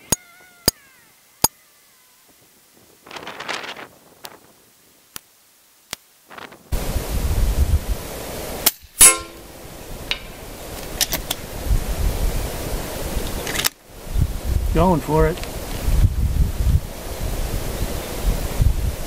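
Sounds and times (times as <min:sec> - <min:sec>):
wind buffeting microphone: 0:02.3 - 0:04.7, 0:06.3 - 0:08.3, 0:09.2 - 0:19.0.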